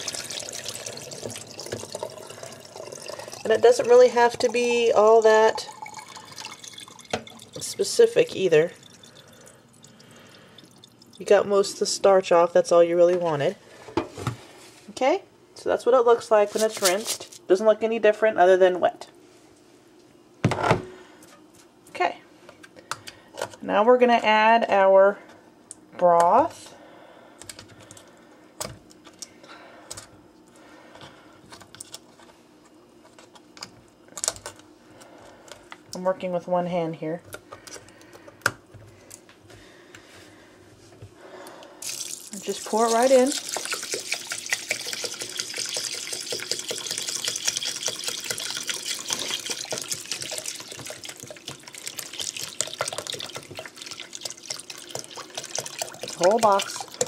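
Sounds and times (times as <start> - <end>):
broth pouring into a pot: 0.0 - 11.4, 41.8 - 57.0.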